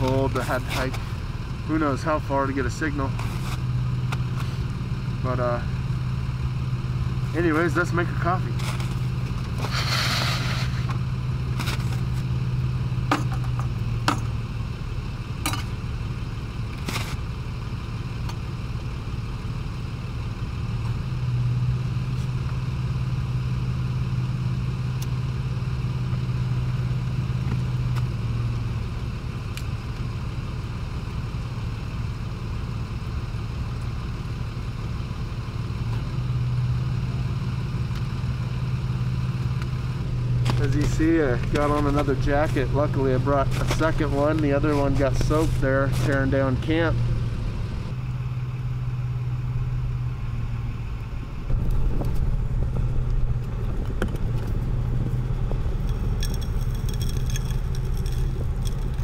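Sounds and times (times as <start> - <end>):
vehicle engine idling: 0.0 - 59.0
clicks and knocks of gear: 40.4 - 46.4, 53.0 - 59.0.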